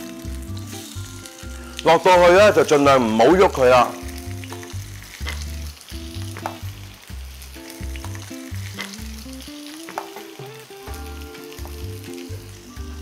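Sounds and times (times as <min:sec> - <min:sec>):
oil sizzling in a pan: 0:00.0 - 0:13.0
crackling pops: 0:02.6 - 0:12.3.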